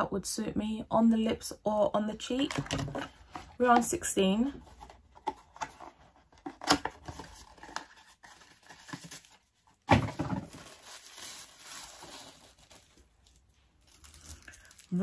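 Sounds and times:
packaging crinkling: 0:06.4 - 0:15.0.

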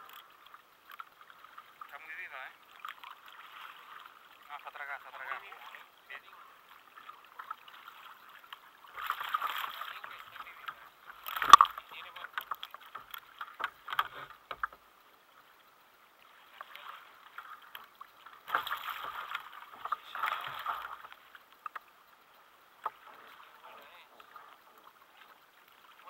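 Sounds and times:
fish thrashing and splashing: 0:11.3 - 0:11.8.

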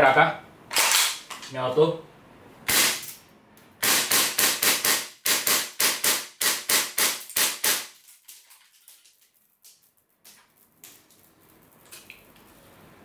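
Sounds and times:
airsoft rifle rapid shots: 0:02.7 - 0:03.0, 0:03.8 - 0:08.0.

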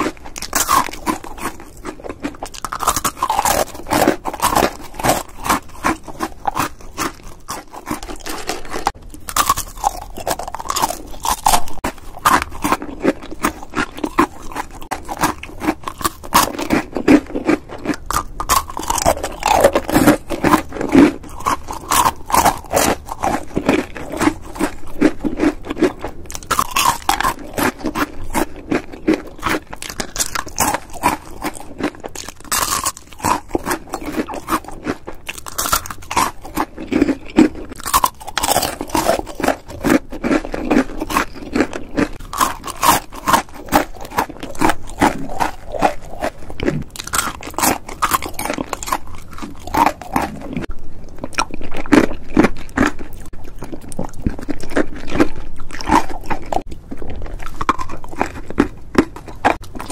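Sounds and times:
popcorn crunching while chewed: 0:00.0 - 0:59.9.

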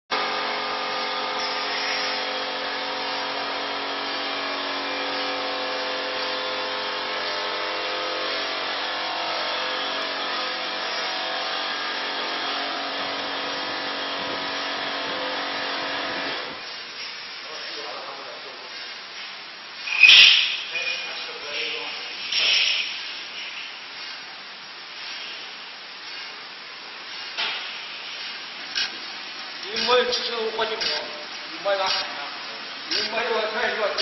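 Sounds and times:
grinding hiss: 0:18.6 - 0:34.0.

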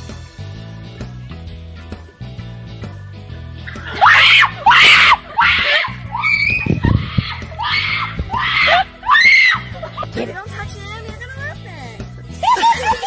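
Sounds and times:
girls screaming: 0:03.8 - 0:10.0, 0:12.4 - 0:13.0.

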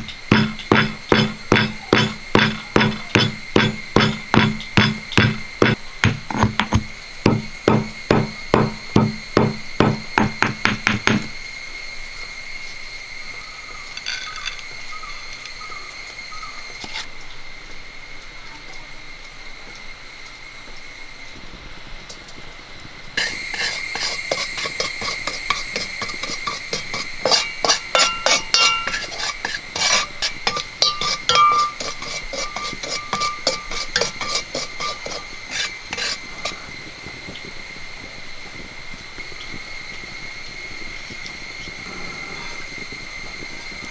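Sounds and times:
metal spatula scraping iron pan: 0:00.0 - 0:11.3, 0:13.9 - 0:14.6, 0:16.8 - 0:17.1, 0:23.2 - 0:36.7
stone pestle pounding in mortar: 0:00.0 - 0:11.4, 0:23.2 - 0:36.6.

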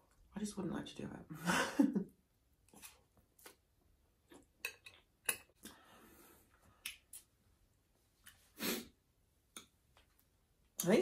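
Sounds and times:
person chewing noodles: 0:02.6 - 0:07.4.

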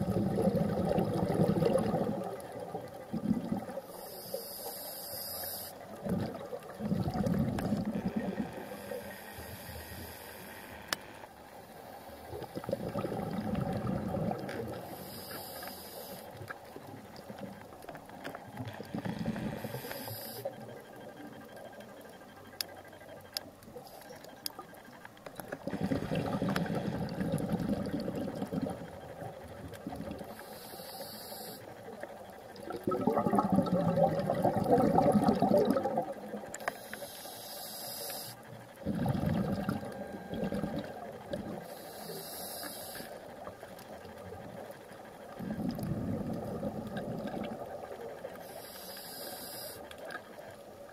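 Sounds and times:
exhaled bubbles underwater: 0:00.0 - 0:03.9, 0:05.9 - 0:08.9, 0:12.3 - 0:15.0, 0:25.4 - 0:30.4, 0:31.9 - 0:36.6, 0:38.8 - 0:41.7, 0:45.3 - 0:48.4
regulator inhalation hiss: 0:03.9 - 0:05.8, 0:08.4 - 0:12.3, 0:14.8 - 0:16.4, 0:19.2 - 0:20.5, 0:30.3 - 0:31.7, 0:36.6 - 0:38.5, 0:41.6 - 0:43.5, 0:48.4 - 0:49.9.

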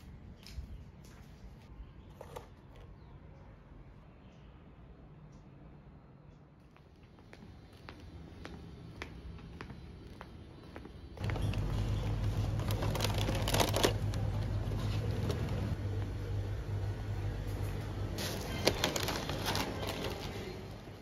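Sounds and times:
shop ambience hum: 0:00.0 - 0:21.0
plastic packets rustling and crinkling: 0:11.2 - 0:15.8, 0:18.2 - 0:21.0.

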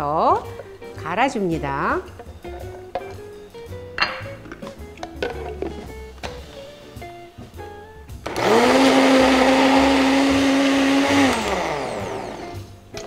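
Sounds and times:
blender motor whirring: 0:08.2 - 0:12.7.

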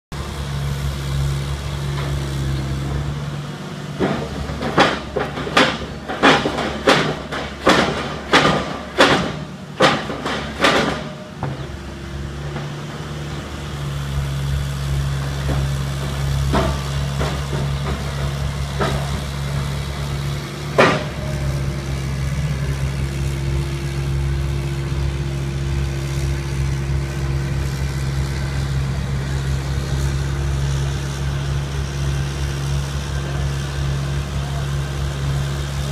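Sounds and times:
piling rig engine running: 0:00.1 - 0:35.9.

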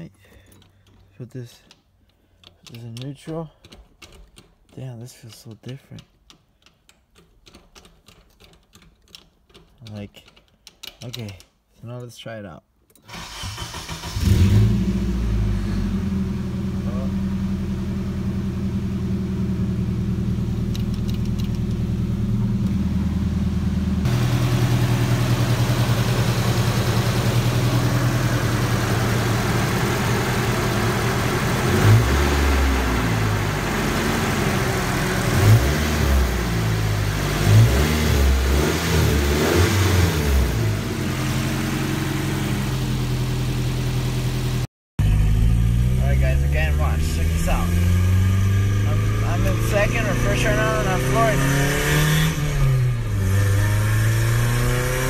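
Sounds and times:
car engine idling and revving: 0:13.2 - 0:55.0.

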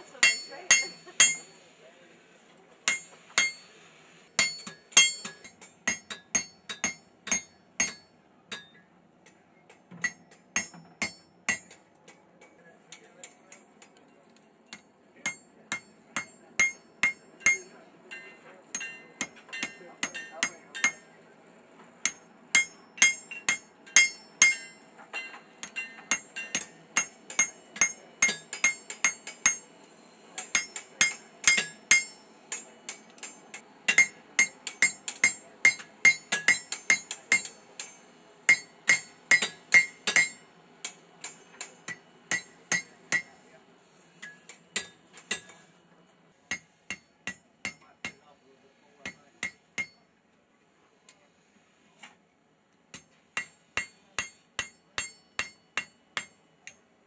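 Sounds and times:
hammer ringing on anvil: 0:00.2 - 0:01.6, 0:02.9 - 0:03.7, 0:04.4 - 0:08.8, 0:10.0 - 0:11.8, 0:14.7 - 0:21.1, 0:22.0 - 0:29.7, 0:30.4 - 0:43.4, 0:44.2 - 0:45.6, 0:46.5 - 0:48.2, 0:49.0 - 0:50.0, 0:53.0 - 0:56.8.

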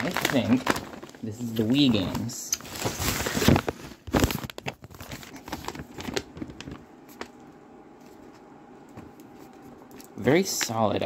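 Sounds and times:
parcel unwrapping clicks and rustles: 0:00.0 - 0:07.5
faint steady hum: 0:00.0 - 0:11.0.

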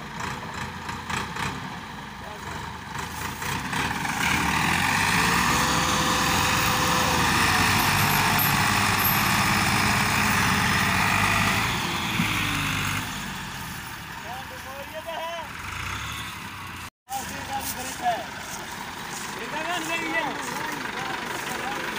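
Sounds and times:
tractor diesel engines running: 0:00.0 - 0:21.9.

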